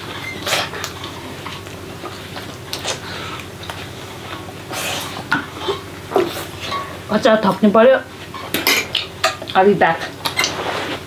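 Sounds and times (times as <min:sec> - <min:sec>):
people chewing and smacking: 0:00.0 - 0:06.7.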